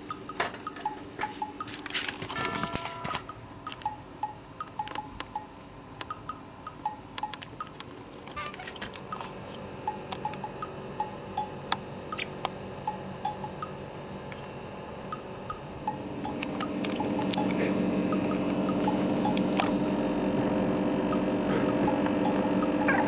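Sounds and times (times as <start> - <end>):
scattered clicks: 0.0 - 10.7, 15.0 - 19.8.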